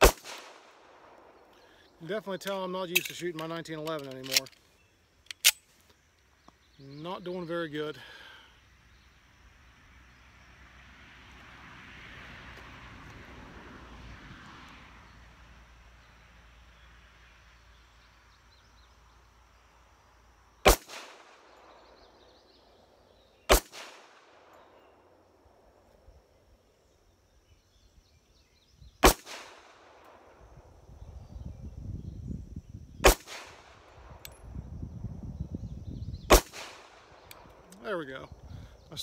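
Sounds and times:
pistol shots with echo: 0.0 - 1.1, 20.6 - 21.8, 23.5 - 24.5, 29.0 - 29.9, 33.0 - 33.8, 36.3 - 37.3.

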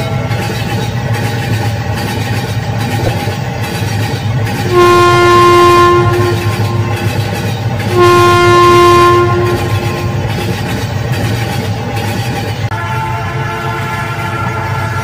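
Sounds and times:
toy train horn: 4.7 - 7.2, 7.8 - 10.2, 12.7 - 15.0.

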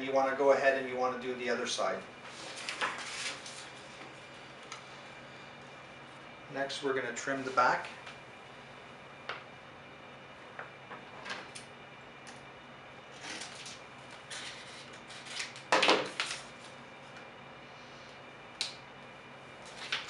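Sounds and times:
vinyl sheet rustling and crackling: 2.3 - 4.3, 13.2 - 16.8.

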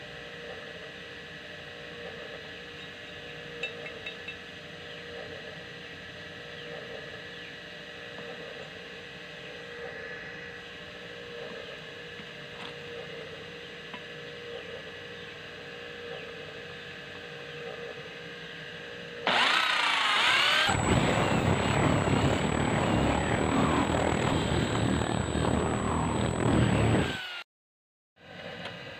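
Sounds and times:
cordless drill drilling steel: 19.3 - 27.4.

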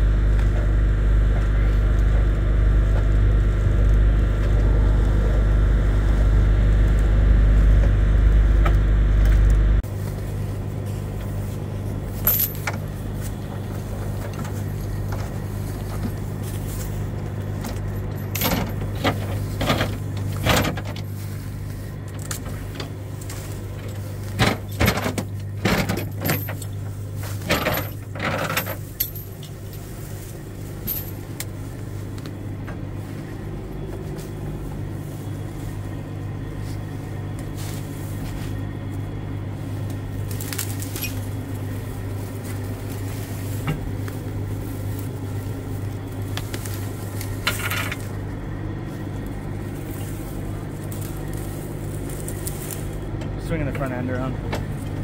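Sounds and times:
truck engine idling: 0.0 - 55.0
metal clanks and chain rattles: 12.1 - 13.0, 13.8 - 21.2, 22.2 - 29.9, 30.8 - 31.4.

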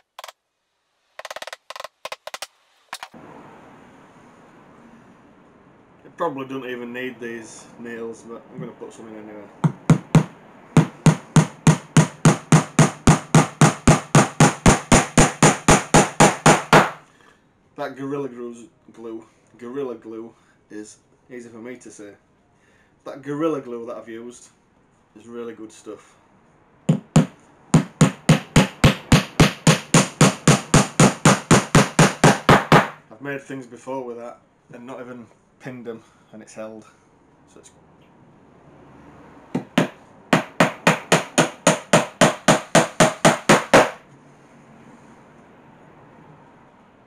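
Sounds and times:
hammer tapping nail into wood: 1.2 - 3.1, 9.6 - 17.0, 26.9 - 33.0, 39.6 - 44.0.

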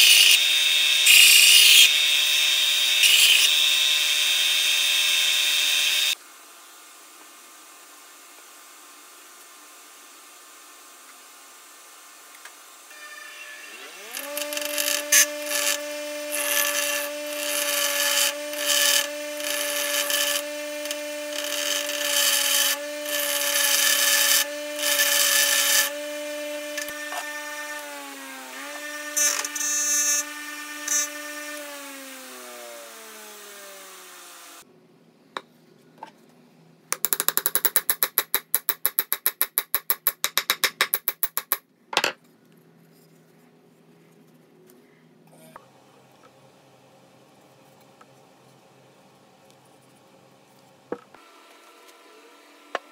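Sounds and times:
bench grinder motor hum: 0.0 - 6.2, 12.9 - 34.6.

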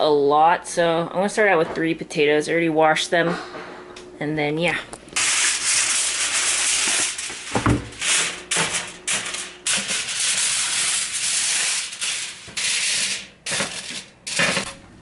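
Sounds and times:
aluminum foil crinkling: 5.0 - 14.8.

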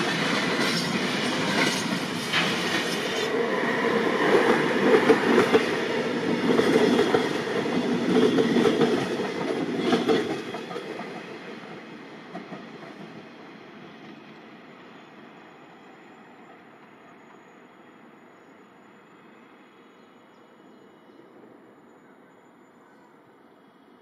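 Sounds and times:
train wheels clattering: 0.0 - 13.2.

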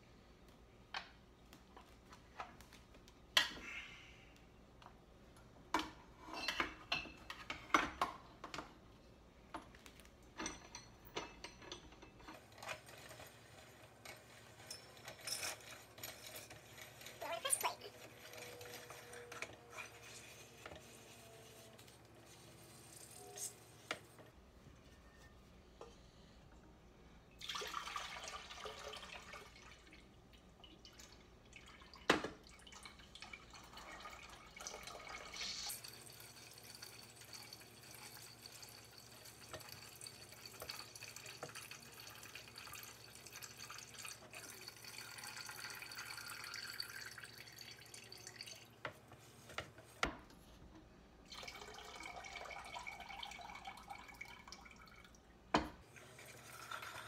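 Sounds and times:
juice dripping into a pot: 27.3 - 48.9, 51.2 - 57.0.

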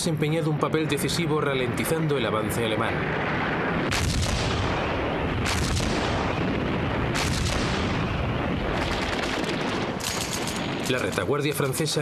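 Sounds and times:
heavy rumble: 0.0 - 12.0
sharp blasts: 3.0 - 11.4
gunfire and shellfire: 3.8 - 11.3
rapid rattle of shots: 8.8 - 11.3.

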